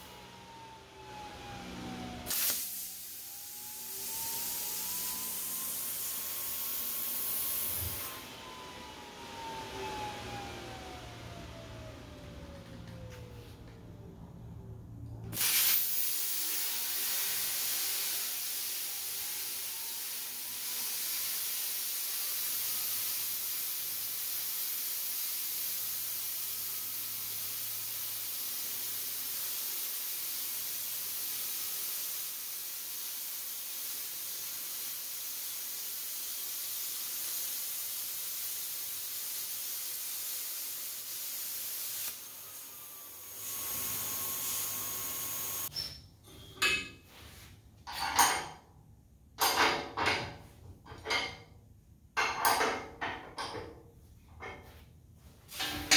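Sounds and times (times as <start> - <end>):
plasma cutter hissing: 2.3 - 8.1, 15.3 - 45.8.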